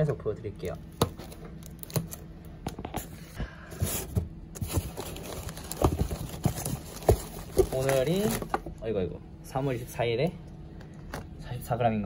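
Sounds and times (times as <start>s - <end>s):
plastic wrap and paper crinkling: 4.0s - 8.6s.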